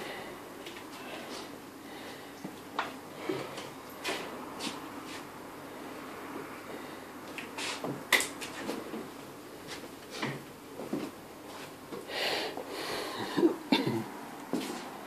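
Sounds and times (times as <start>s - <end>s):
person coughing: 13.1s - 14.1s.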